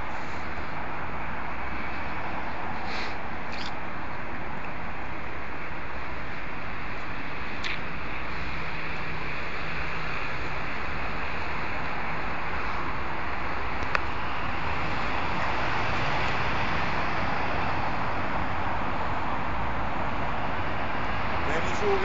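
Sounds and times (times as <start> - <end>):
city traffic: 0.0 - 22.0
wind: 0.0 - 22.0
sharp click: 3.5 - 3.8.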